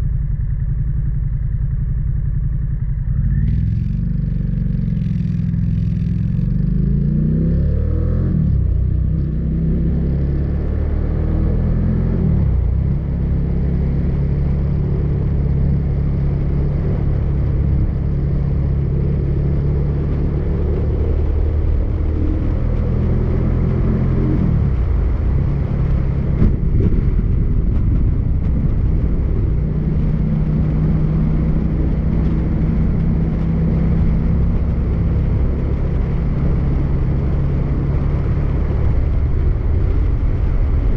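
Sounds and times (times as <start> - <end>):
motorcycle engine running: 0.0 - 40.9
wind rushing past microphone: 20.0 - 40.9.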